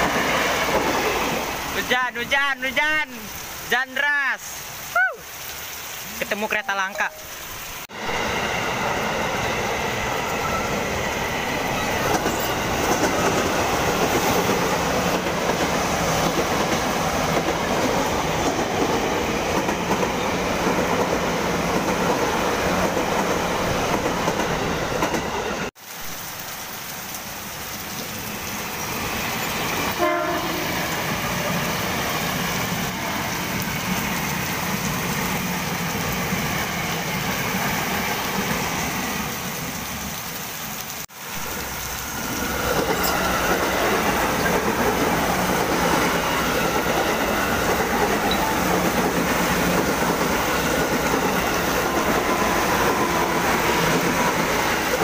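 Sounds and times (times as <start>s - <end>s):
train passing at speed: 0.0s - 4.6s, 6.4s - 25.8s, 27.3s - 55.0s
heavy rain: 0.0s - 55.0s
train horn blast: 29.9s - 31.6s.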